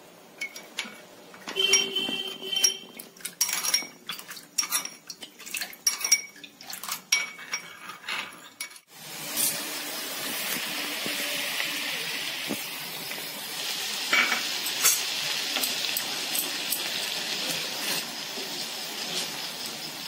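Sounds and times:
spoon clinking against glass bowl: 1.5s - 5.0s, 5.8s - 6.4s
sauce sizzling in a frying pan: 8.9s - 20.0s.

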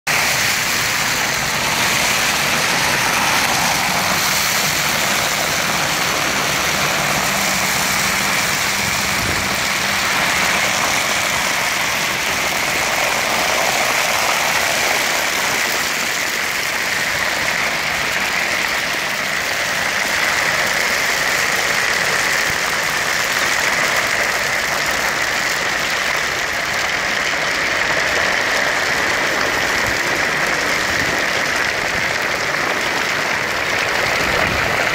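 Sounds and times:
vacuum hose sucking gravel: 0.1s - 34.9s.

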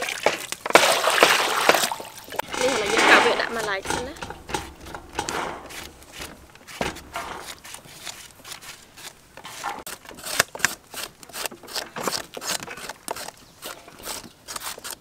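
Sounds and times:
knife chopping on wooden block: 3.4s - 12.6s.

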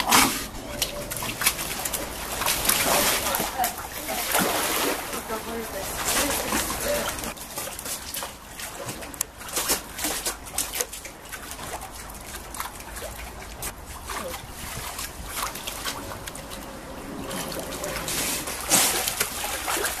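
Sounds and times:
loud splash: 0.0s - 7.4s, 13.8s - 20.0s
water splashing and sloshing: 0.0s - 20.0s.

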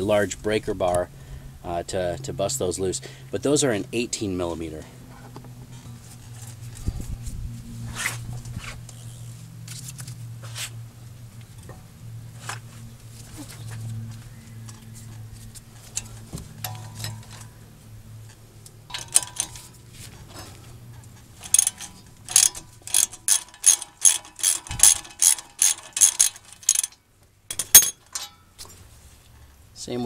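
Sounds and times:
socket ratchet clicking: 21.4s - 28.2s.

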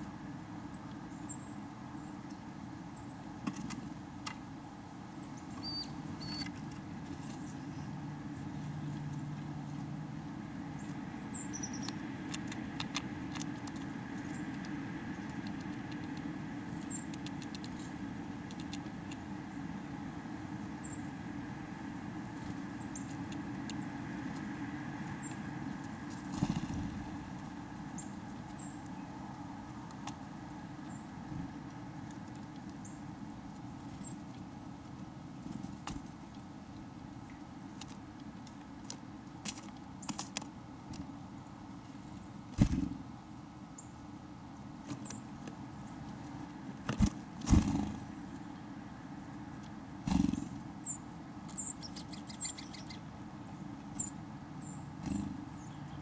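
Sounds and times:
faint high bird chips: 5.4s - 6.6s, 50.2s - 53.0s
birds pecking at seeds: 5.6s - 43.1s, 44.8s - 53.0s, 54.8s - 56.0s.

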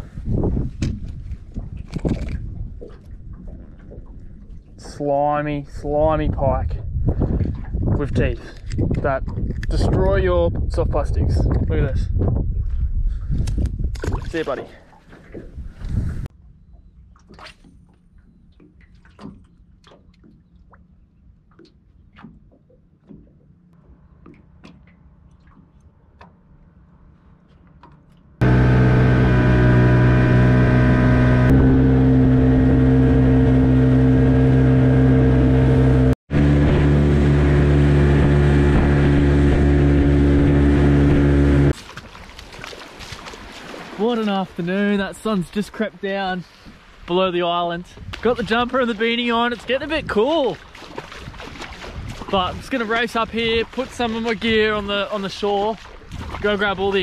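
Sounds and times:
outboard motor droning: 16.4s - 41.8s.

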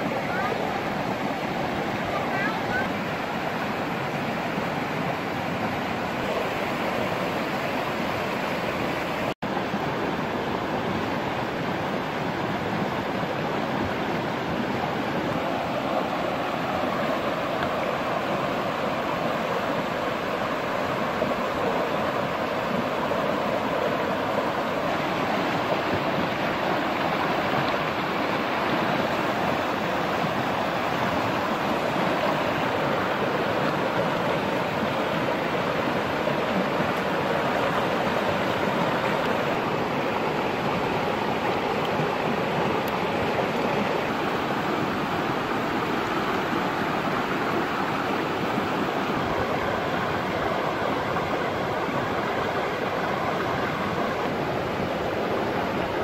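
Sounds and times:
river rushing over rocks: 0.0s - 56.0s.

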